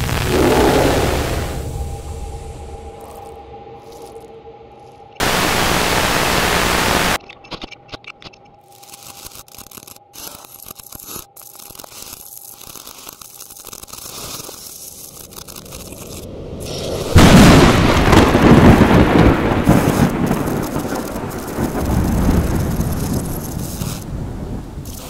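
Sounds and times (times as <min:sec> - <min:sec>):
loud rumbling noise: 0:00.0 - 0:03.5, 0:05.2 - 0:07.2, 0:16.3 - 0:23.5.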